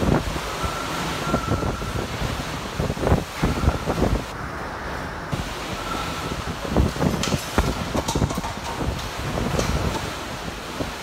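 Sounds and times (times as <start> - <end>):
hurricane winds rushing: 0.0 - 11.0
low thumps and rumbles: 5.3 - 11.0.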